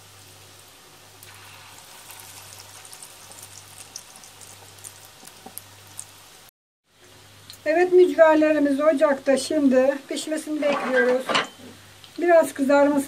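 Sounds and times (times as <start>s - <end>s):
fritters sizzling in oil: 0.0s - 6.5s
oil crackling and popping: 1.1s - 6.5s.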